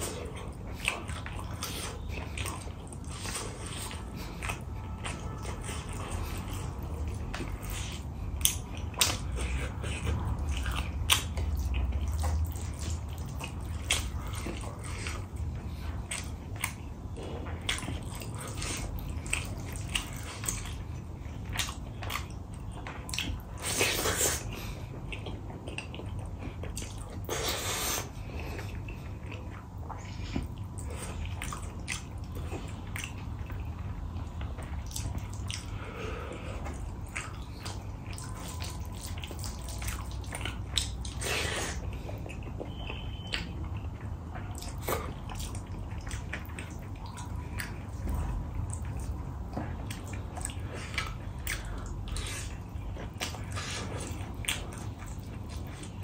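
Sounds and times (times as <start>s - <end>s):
wet chewing and lip-smacking: 0.0s - 56.0s.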